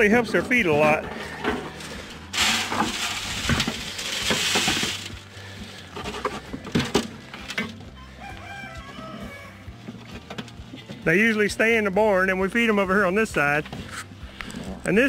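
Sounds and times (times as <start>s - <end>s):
dry hay rustling and crunching: 1.2s - 6.5s.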